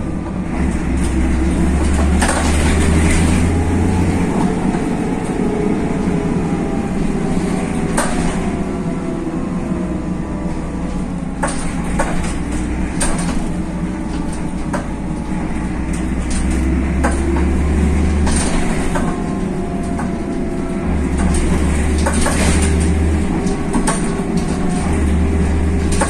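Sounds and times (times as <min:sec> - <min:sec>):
bus engine rumble: 0:00.0 - 0:26.0
bodywork rattles and clicks: 0:00.6 - 0:03.6, 0:11.4 - 0:26.0.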